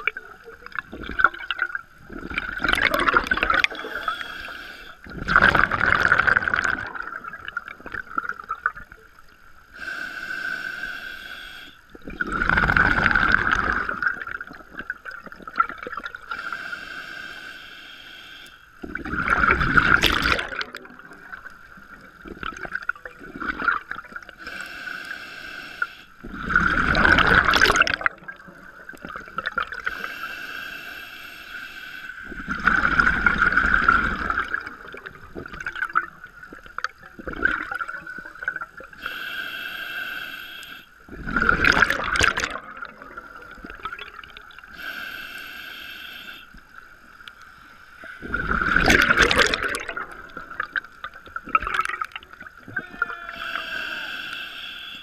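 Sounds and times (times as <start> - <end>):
exhaled bubbles rushing: 0.0 - 4.2, 5.0 - 9.2, 11.9 - 16.3, 18.8 - 24.4, 26.2 - 29.9, 32.2 - 38.9, 41.1 - 44.7, 48.2 - 53.0
regulator hissing inhale: 3.7 - 5.0, 9.7 - 11.9, 16.3 - 18.7, 24.4 - 26.2, 29.8 - 32.3, 39.0 - 41.0, 44.7 - 46.8, 53.4 - 55.0.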